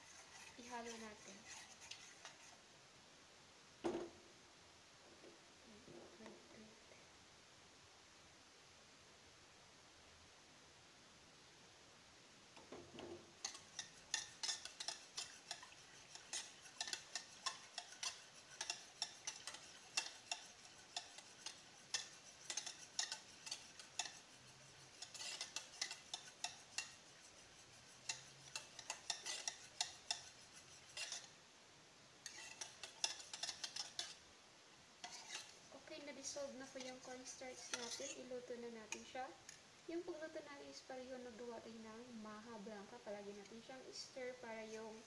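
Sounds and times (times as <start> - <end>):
whisk clicking and scraping in pan: 0.0 - 2.7, 12.6 - 31.4, 32.2 - 34.3, 35.0 - 39.7.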